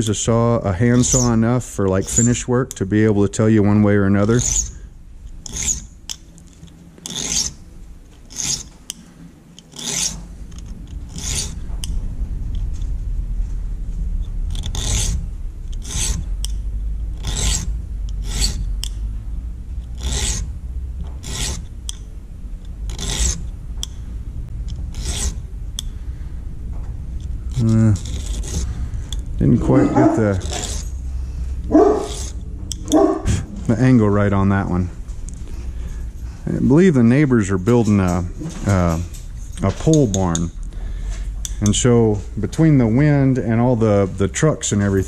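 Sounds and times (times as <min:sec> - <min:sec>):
low rumble: 0:00.0 - 0:08.3, 0:10.2 - 0:45.0
file rasping on saw teeth: 0:00.9 - 0:01.4, 0:02.0 - 0:02.4, 0:04.2 - 0:04.8, 0:05.4 - 0:06.2, 0:07.0 - 0:07.6, 0:08.3 - 0:09.0, 0:09.7 - 0:10.2, 0:11.1 - 0:11.6, 0:14.5 - 0:18.7, 0:19.8 - 0:20.5, 0:21.2 - 0:22.0, 0:22.9 - 0:23.5, 0:24.9 - 0:25.4, 0:27.5 - 0:28.7, 0:29.4 - 0:31.0, 0:31.7 - 0:33.4.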